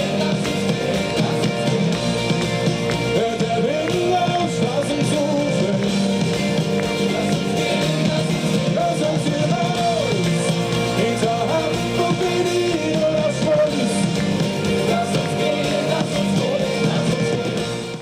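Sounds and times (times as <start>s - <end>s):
live rock band: 0.0s - 18.0s
person singing: 0.0s - 18.0s.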